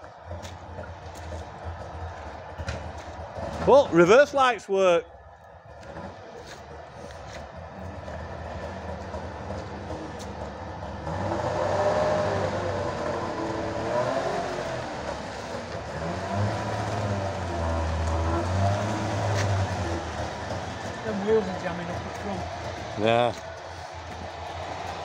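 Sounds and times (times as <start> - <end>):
two-stroke car engine revving: 8.0 - 24.8.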